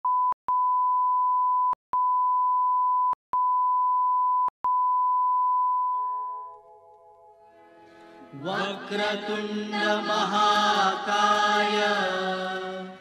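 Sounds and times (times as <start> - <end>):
steady pure test tone beep: 0.0 - 6.6.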